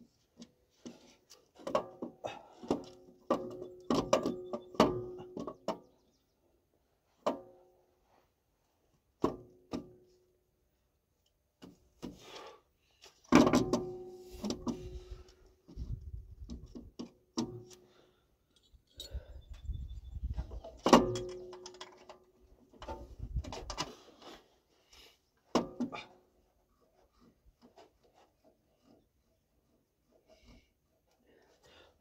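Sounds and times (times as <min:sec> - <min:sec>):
metal clinks and knocks: 0:18.5 - 0:19.4.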